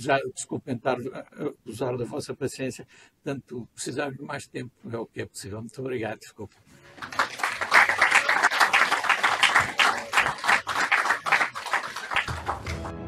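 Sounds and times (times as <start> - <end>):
audience applauding: 6.8 - 13.0
closing music: 12.2 - 13.0.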